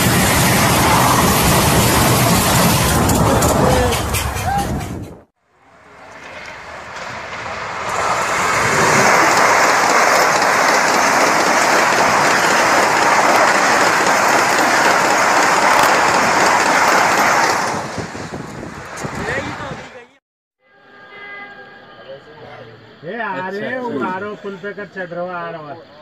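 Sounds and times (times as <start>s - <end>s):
high-speed train passing: 0.0s - 20.2s.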